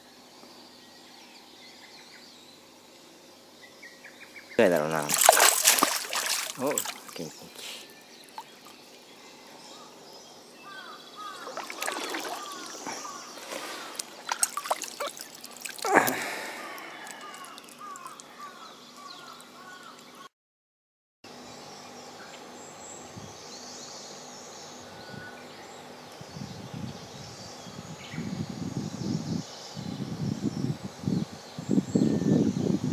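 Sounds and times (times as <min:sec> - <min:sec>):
bird chirping: 0:03.4 - 0:20.3
fish splashing in water: 0:04.8 - 0:08.8, 0:11.2 - 0:18.5.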